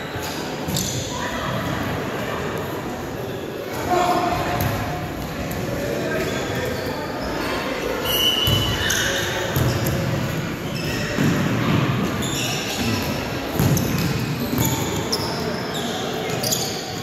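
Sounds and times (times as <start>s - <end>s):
shoes squeaking: 12.1s - 17.0s.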